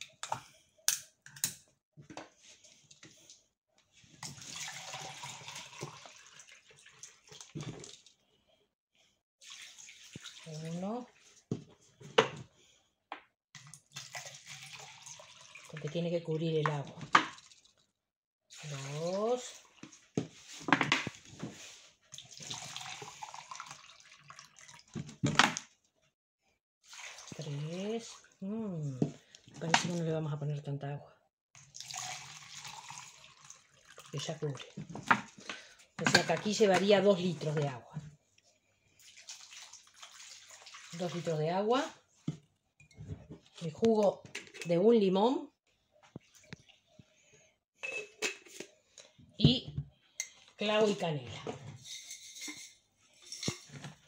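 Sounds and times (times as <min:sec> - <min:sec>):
water splashing and glugging: 0:04.1 - 0:08.4, 0:09.4 - 0:11.6, 0:13.6 - 0:16.1, 0:16.7 - 0:17.9, 0:18.5 - 0:25.4, 0:26.8 - 0:30.1, 0:31.6 - 0:36.0, 0:38.9 - 0:42.2
water pouring into plastic jug: 0:04.2 - 0:08.1, 0:09.4 - 0:10.8, 0:13.6 - 0:16.0, 0:16.7 - 0:17.8, 0:22.2 - 0:25.1, 0:26.8 - 0:28.4, 0:31.6 - 0:35.7, 0:39.0 - 0:41.5.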